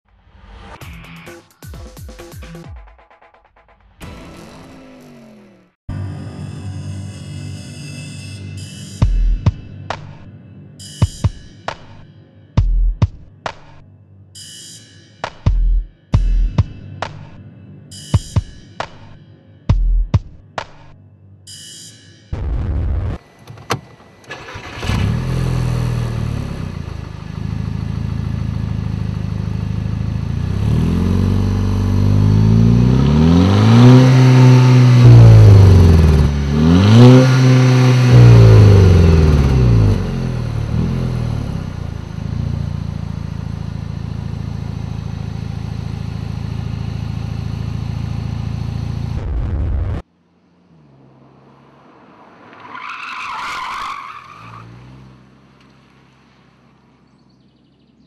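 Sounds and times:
engine revving: 4.0 - 5.8, 24.2 - 52.7
car engine starting and idling: 22.5 - 58.0
distant car approaching: 23.2 - 58.0.

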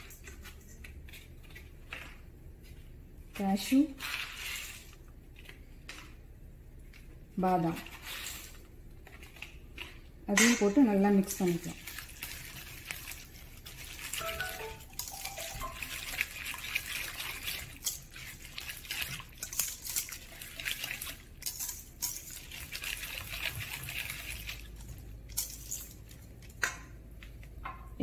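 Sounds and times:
whisk stirring wet batter: 7.8 - 26.1.

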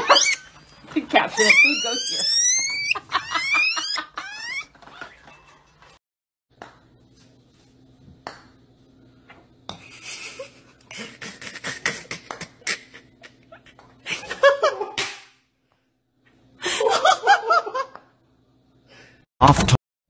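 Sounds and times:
person laughing: 1.4 - 4.7, 9.9 - 15.0.

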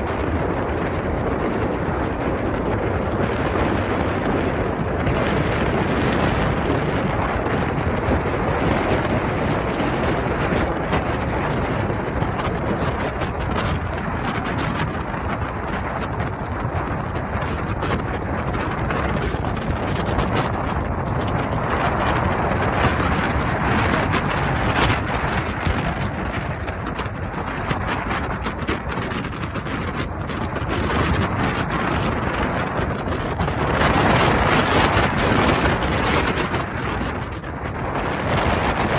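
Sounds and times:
motorboat engine running: 0.0 - 38.9
wind buffeting microphone: 0.0 - 38.9.

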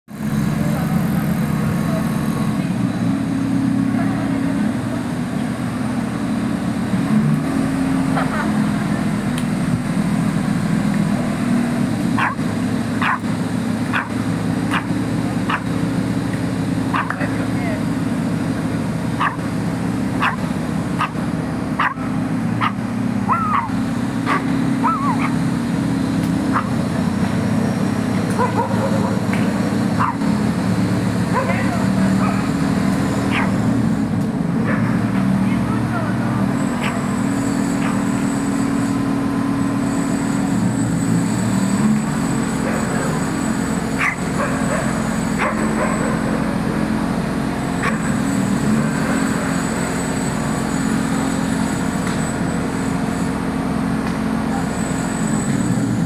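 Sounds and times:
diesel engines droning: 0.0 - 56.0
dog whining yelps: 12.2 - 12.4, 13.0 - 13.2, 19.2 - 19.4, 20.2 - 20.4, 21.8 - 22.0, 22.6 - 25.4, 26.5 - 26.8, 30.0 - 30.2, 33.3 - 33.6, 44.0 - 46.1.

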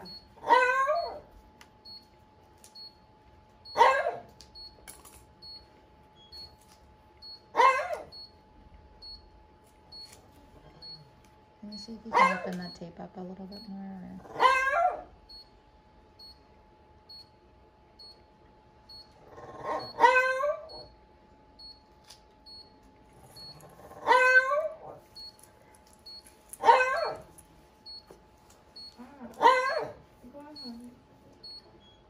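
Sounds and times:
dog whining: 0.0 - 1.3, 7.5 - 8.2, 14.2 - 15.2, 19.2 - 21.0, 23.2 - 25.0, 26.6 - 27.3, 28.8 - 30.0.

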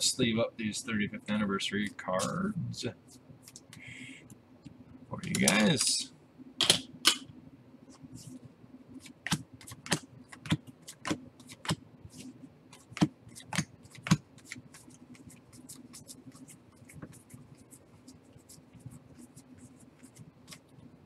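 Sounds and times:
trading cards snapping and flicking: 9.0 - 11.8, 12.8 - 14.7.

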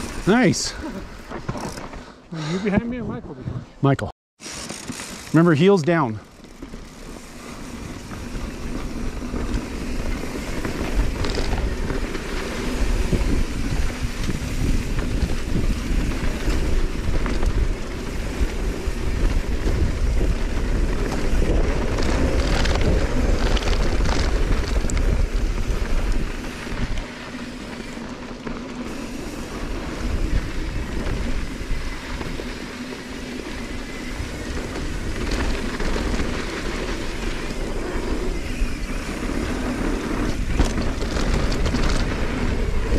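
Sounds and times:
bike tyres on dirt trail: 0.0 - 3.0, 4.4 - 42.9
bike rattling over bumps: 4.4 - 42.9
wind buffeting microphone: 8.0 - 27.0, 28.9 - 42.9.

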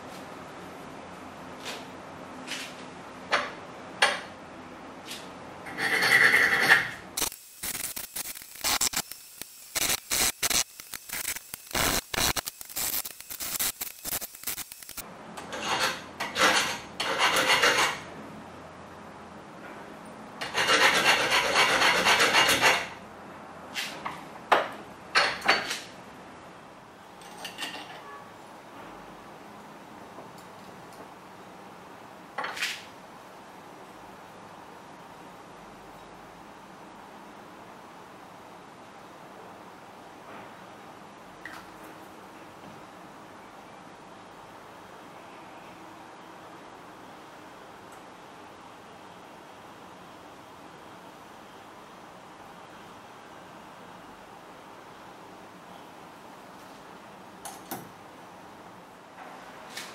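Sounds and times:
hand file rasping: 5.7 - 6.9, 15.6 - 18.0, 20.4 - 22.9.

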